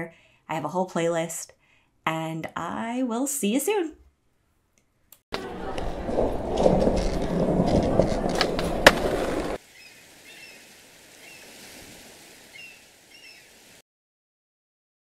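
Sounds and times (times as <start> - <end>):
sharp skateboard clacks: 5.4 - 9.6
skateboard wheels rolling on floor: 5.4 - 9.6.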